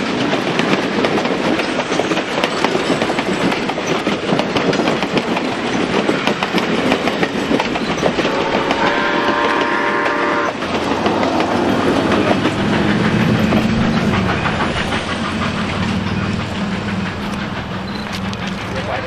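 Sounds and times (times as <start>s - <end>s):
train wheels clicking over rail joints: 0.0s - 19.0s
train whistle: 8.2s - 10.6s.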